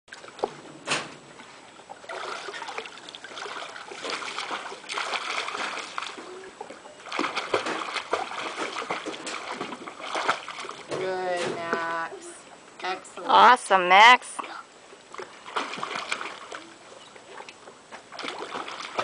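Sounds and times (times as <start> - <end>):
water splashing: 0.1 - 12.6, 14.3 - 19.0.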